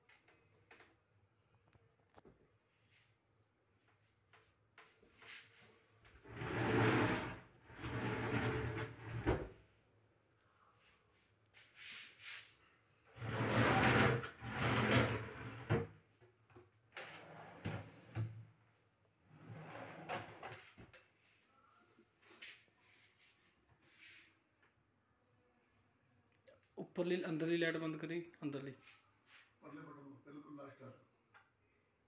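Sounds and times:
drawers sliding on runners: 0:06.2 - 0:09.5, 0:13.2 - 0:15.9.

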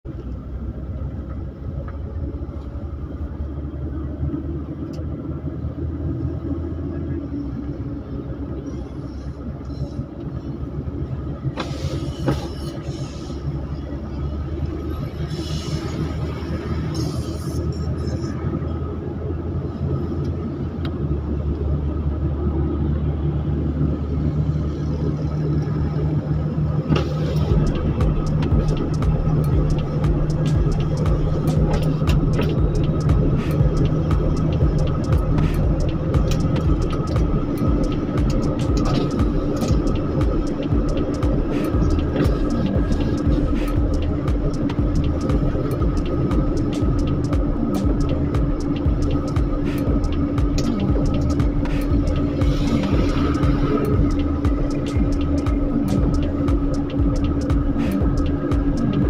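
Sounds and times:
vehicle engine and road rumble: 0:00.0 - 0:59.0.

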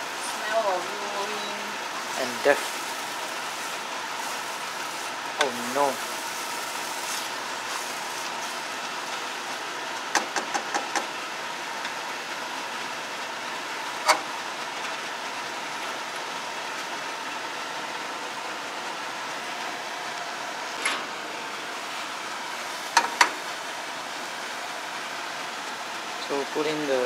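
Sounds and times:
gas burner hissing: 0:00.0 - 0:27.0
curry paste frying: 0:01.7 - 0:26.2.

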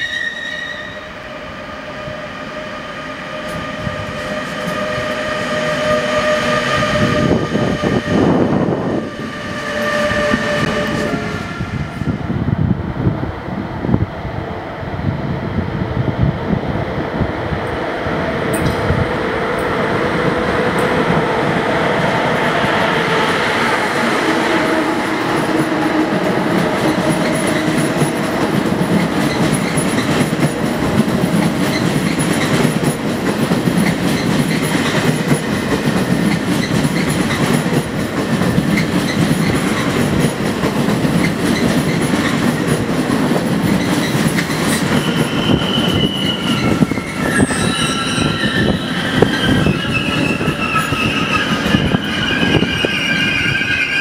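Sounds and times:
high wheel squeal: 0:00.0 - 0:01.2, 0:44.7 - 0:54.0
train wheels rumbling on rail: 0:00.0 - 0:54.0.

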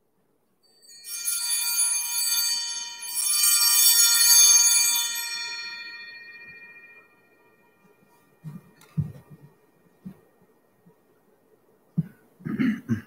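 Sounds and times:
altar bells ringing: 0:00.6 - 0:10.8.

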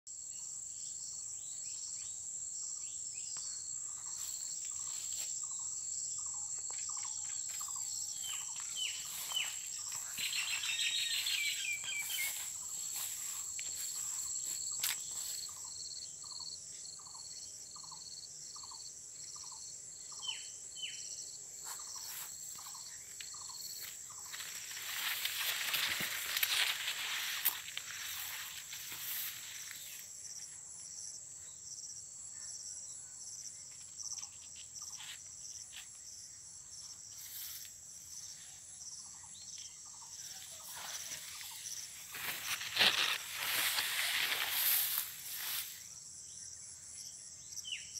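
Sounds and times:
high-pitched insect drone: 0:01.0 - 0:30.1, 0:39.8 - 0:46.0
birds calling: 0:05.5 - 0:15.7
rustle of movement: 0:21.6 - 0:30.1, 0:40.2 - 0:45.8.

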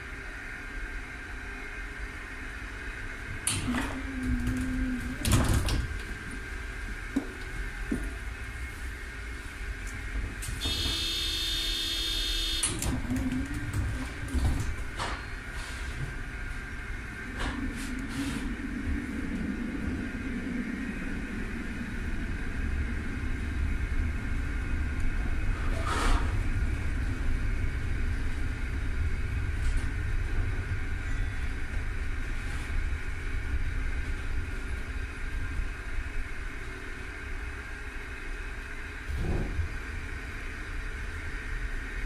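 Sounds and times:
tram low rumble: 0:00.0 - 0:42.0
high whine: 0:06.6 - 0:14.4.

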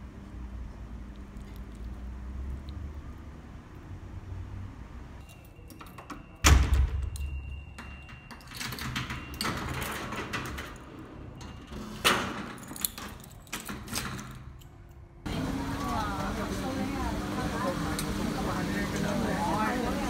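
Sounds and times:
lock and keys rattling: 0:05.2 - 0:11.6, 0:12.2 - 0:15.2
door and metal gate thudding: 0:05.8 - 0:14.6.

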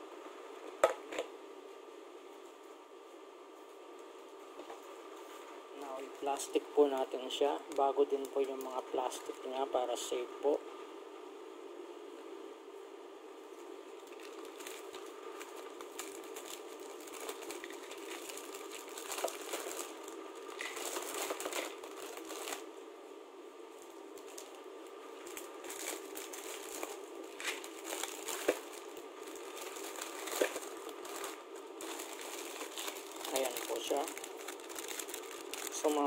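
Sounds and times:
plastic bag crinkling: 0:06.2 - 0:09.7, 0:14.0 - 0:22.7, 0:23.8 - 0:24.6, 0:25.2 - 0:36.0.

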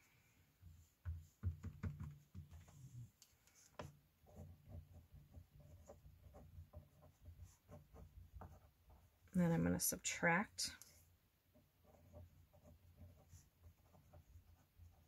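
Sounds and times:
pen writing on paper: 0:03.8 - 0:09.0, 0:11.8 - 0:15.0.

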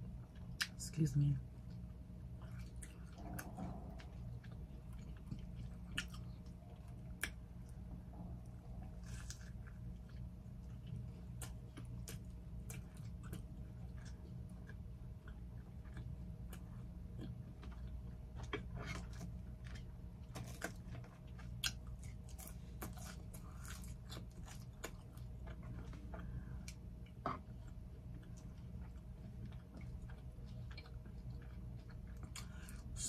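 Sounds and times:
low hum: 0:00.0 - 0:33.0
chewing and biting: 0:01.6 - 0:33.0.

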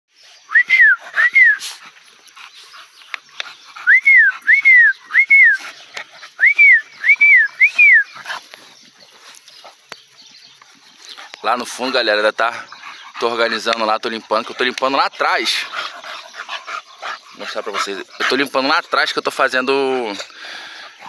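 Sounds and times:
person whistling for dogs: 0:00.5 - 0:01.8, 0:03.8 - 0:05.7, 0:06.4 - 0:08.2.

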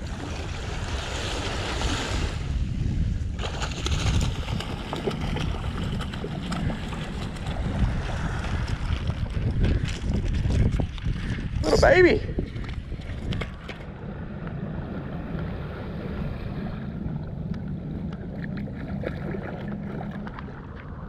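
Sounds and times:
small waves washing on sand: 0:00.0 - 0:02.6, 0:03.4 - 0:09.9
wind buffeting microphone: 0:00.0 - 0:21.0.

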